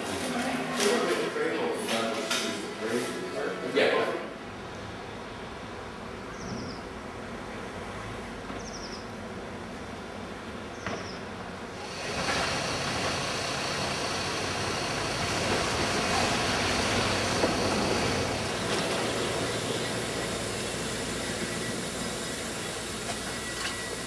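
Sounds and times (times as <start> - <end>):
low engine rumble: 11.5 - 24.0
steam hissing: 11.8 - 24.0.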